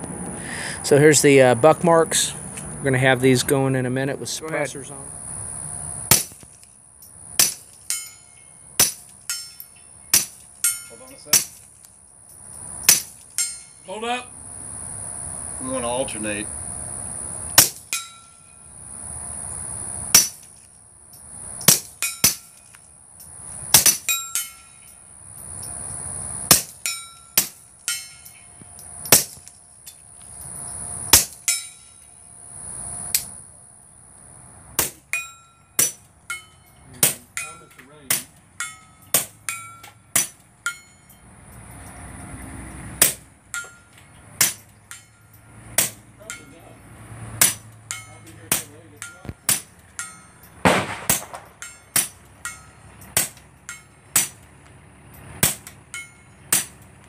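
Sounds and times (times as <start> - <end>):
suppressed pistol shots: 50.6 - 52.1.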